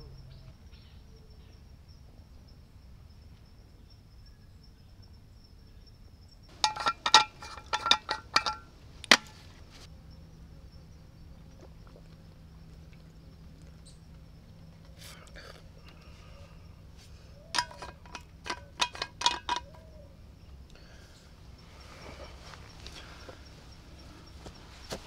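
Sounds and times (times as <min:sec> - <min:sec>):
insect chirr: 0:00.0 - 0:25.0
metallic clinks of canteen: 0:06.5 - 0:09.4, 0:17.5 - 0:19.9.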